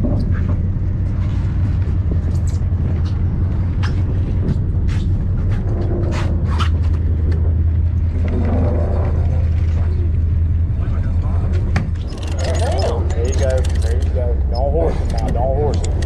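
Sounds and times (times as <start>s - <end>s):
boat engine humming: 0.0s - 16.0s
sharp clicks and taps: 15.0s - 16.0s.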